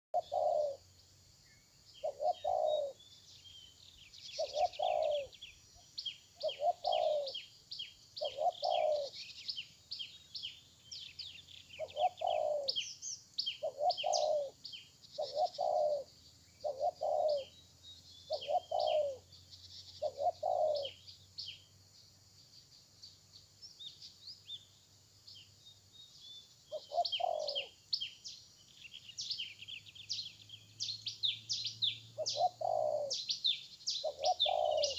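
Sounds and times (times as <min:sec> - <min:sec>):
dove cooing: 0:00.2 - 0:00.9, 0:02.0 - 0:03.0, 0:04.3 - 0:05.4, 0:06.4 - 0:07.4, 0:08.2 - 0:09.3, 0:11.8 - 0:12.9, 0:13.5 - 0:14.6, 0:15.2 - 0:17.6, 0:18.3 - 0:19.3, 0:20.0 - 0:21.0, 0:26.7 - 0:27.8, 0:32.2 - 0:34.9
small birds chirping: 0:00.2 - 0:34.9.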